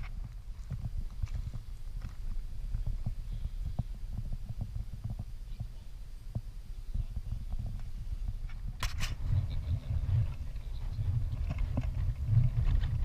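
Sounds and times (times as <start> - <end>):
wind rumbling on microphone: 0.0 - 13.0
camera knocking on dirt: 7.1 - 9.2, 11.0 - 13.0.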